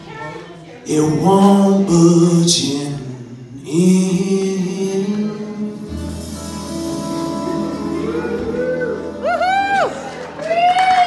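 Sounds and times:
upright bass: 3.6 - 10.4
guitars ringing out chords: 4.7 - 10.4
pedal steel guitar: 5.8 - 10.6.

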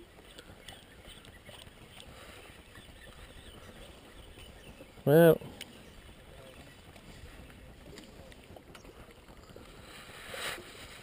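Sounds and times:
short rush of hissy noise: 10.2 - 11.0.

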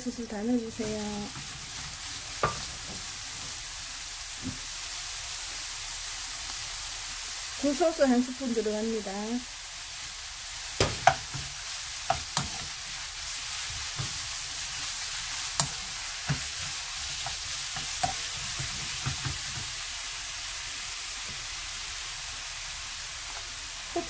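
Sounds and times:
mushrooms sizzling in hot oil: 0.0 - 24.0
spatula knocking against pan: 10.8 - 12.7.

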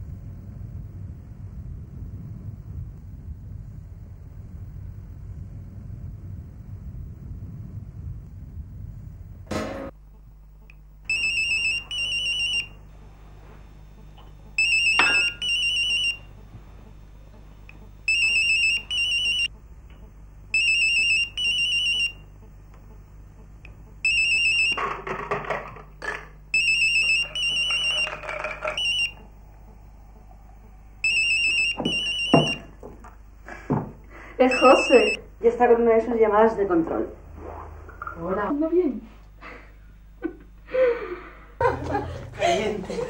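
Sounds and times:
steady low hum: 0.0 - 43.0
mobile phone ringing: 11.1 - 12.8, 14.6 - 16.3, 18.1 - 19.5, 20.6 - 22.2, 24.0 - 24.8, 26.6 - 29.3, 31.0 - 32.7, 34.4 - 35.2
shuffling noise: 39.0 - 39.3.

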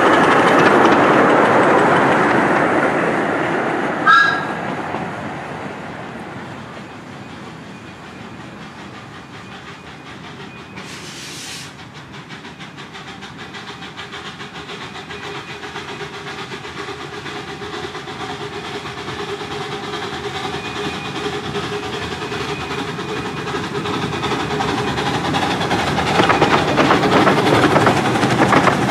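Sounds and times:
steam locomotive exhaust beats: 0.0 - 28.9
sharp hiss of steam: 7.1 - 28.9.

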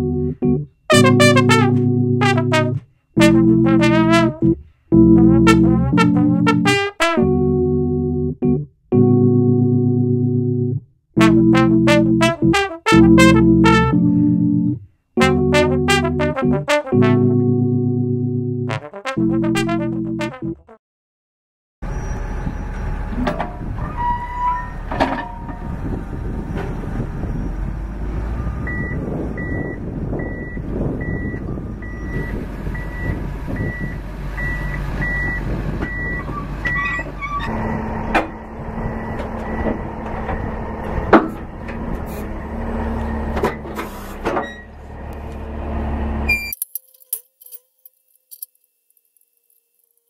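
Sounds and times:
diesel engine running: 0.0 - 6.7, 24.9 - 46.4
backup alarm beeping: 28.6 - 37.1, 38.8 - 40.6.

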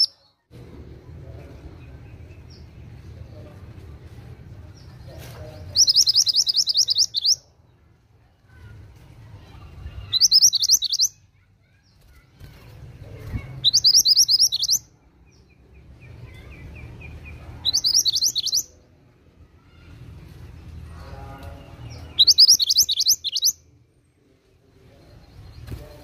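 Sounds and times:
bird singing high sweeping notes: 5.8 - 7.4, 10.0 - 11.2, 17.6 - 18.7, 21.8 - 23.6.

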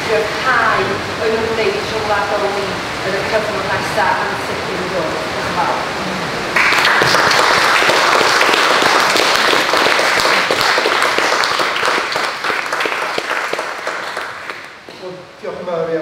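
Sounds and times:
audience applauding: 6.5 - 15.0.

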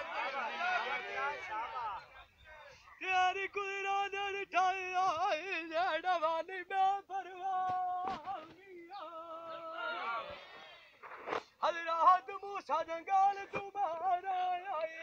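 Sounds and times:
man singing unaccompanied: 3.0 - 10.0, 11.6 - 15.0.

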